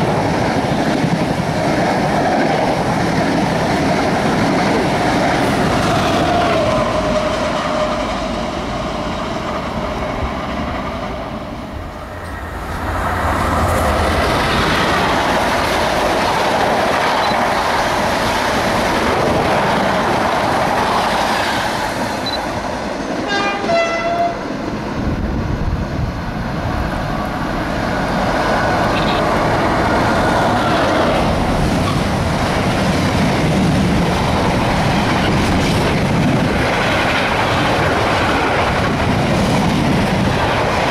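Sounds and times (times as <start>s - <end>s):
passenger train passing at speed: 0.0s - 40.9s
train horn blast: 23.2s - 24.4s.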